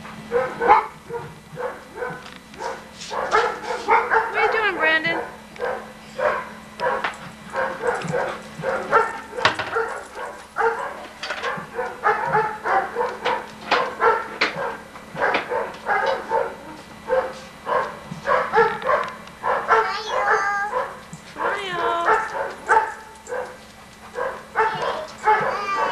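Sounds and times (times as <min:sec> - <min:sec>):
steady low hum: 0:00.0 - 0:25.9
dog barking: 0:00.3 - 0:25.9.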